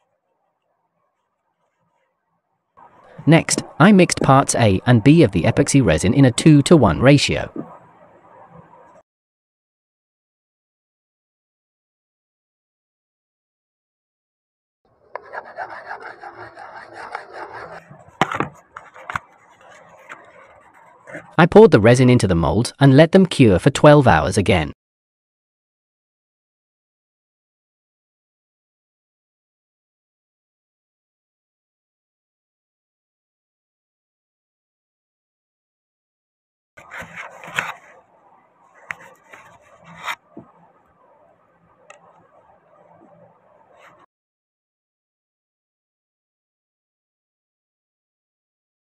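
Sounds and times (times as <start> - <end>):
stick scraping plastic cup: 15.1 - 21.4, 36.8 - 38.0, 38.8 - 40.5.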